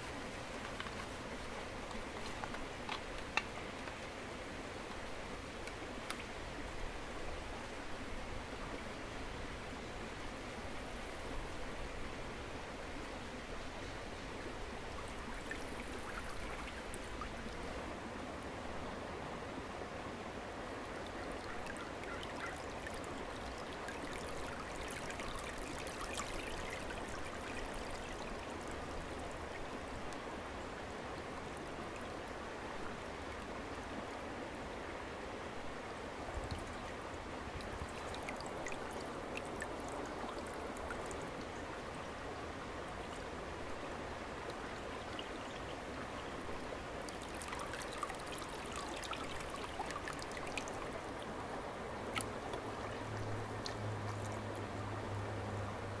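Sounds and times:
creek flowing: 0:00.0 - 0:56.0
water trickling through basket: 0:47.1 - 0:50.9.

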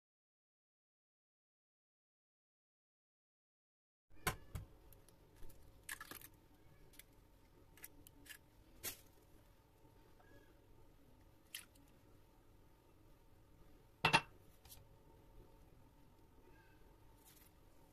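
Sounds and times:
eggshell cracking: 0:05.8 - 0:07.1.

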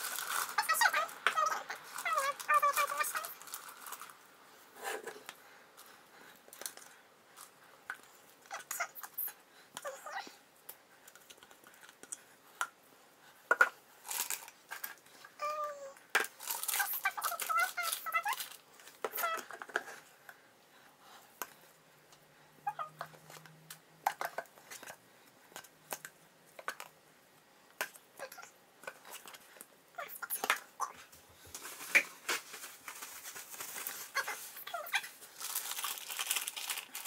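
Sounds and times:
plastic piping bag crinkling: 0:00.0 - 0:04.2, 0:16.3 - 0:19.0, 0:31.4 - 0:37.0.

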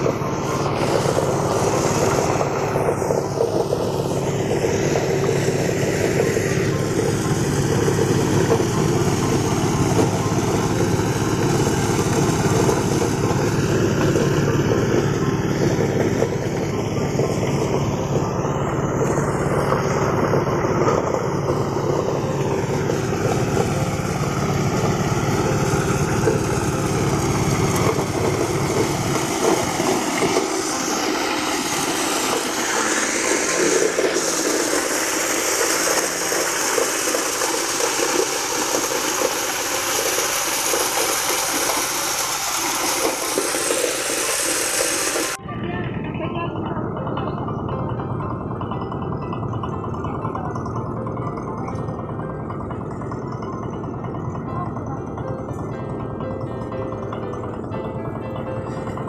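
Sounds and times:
engine drone: 0:00.0 - 0:59.0
milling machine noise: 0:00.0 - 0:59.0.

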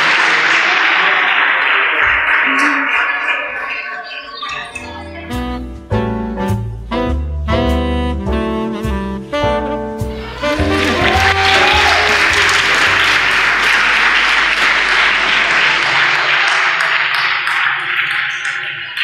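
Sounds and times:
audience applauding: 0:00.0 - 0:04.7, 0:10.2 - 0:19.0
background music: 0:04.8 - 0:13.6.

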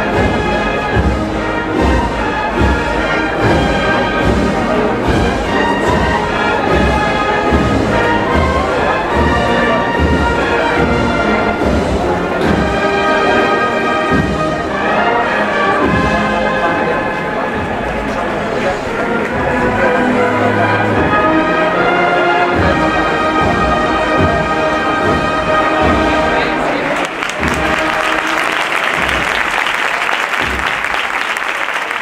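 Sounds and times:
steady drum beat: 0:00.0 - 0:14.9, 0:22.5 - 0:31.4
brass chords: 0:00.0 - 0:32.0.

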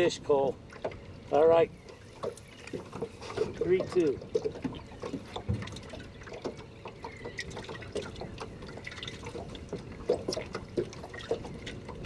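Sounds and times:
water splashing and dripping: 0:00.6 - 0:12.0.

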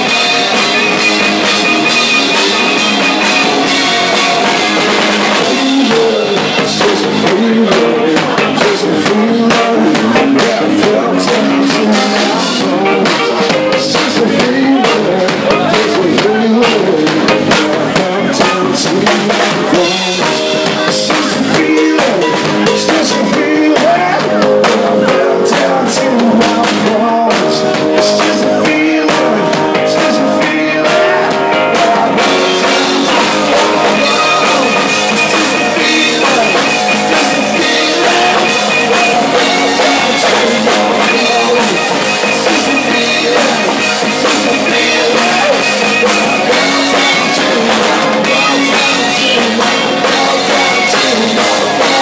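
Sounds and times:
bass guitar: 0:00.0 - 0:52.0
drum kit: 0:00.0 - 0:52.0
electric guitars: 0:00.0 - 0:52.0
man singing: 0:00.0 - 0:52.0.

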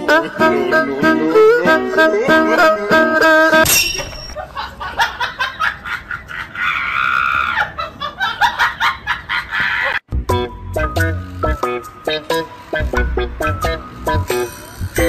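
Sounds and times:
plucked-string music: 0:00.0 - 0:04.3, 0:10.1 - 0:15.0
person laughing: 0:04.4 - 0:10.0.

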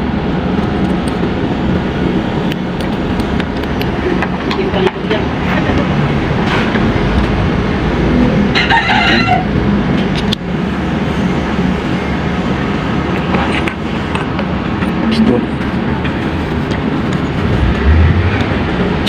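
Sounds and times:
rooster crowing: 0:08.5 - 0:09.5
steady low rumble: 0:15.4 - 0:19.0.

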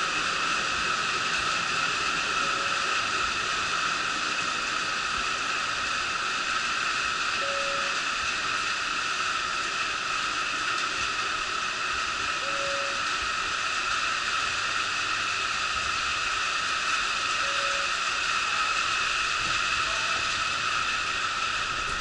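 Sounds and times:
train equipment whirring hiss: 0:00.0 - 0:22.0
short faint beep: 0:07.4 - 0:08.0, 0:12.4 - 0:13.0, 0:17.4 - 0:17.9.

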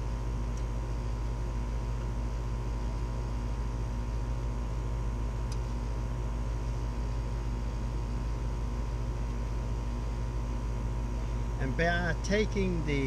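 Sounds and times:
low mechanical hum: 0:00.0 - 0:13.0
faint light ticks: 0:00.5 - 0:00.7
faint high drone: 0:11.3 - 0:13.0.

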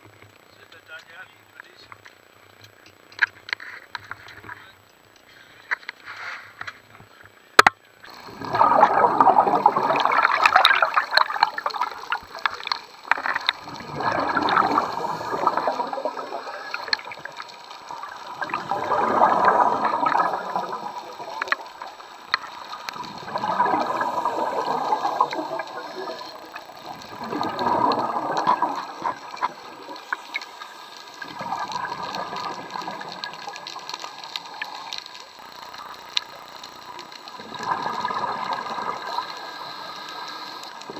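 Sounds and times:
air bubbling underwater: 0:08.1 - 0:29.9, 0:31.2 - 0:33.6, 0:37.4 - 0:39.2.

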